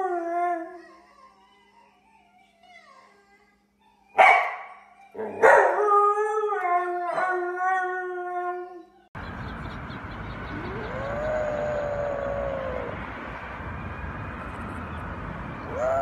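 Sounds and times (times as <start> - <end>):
dog yelp: 4.1 - 5.8
dog howling: 5.1 - 9.0, 10.5 - 13.1, 15.6 - 16.0.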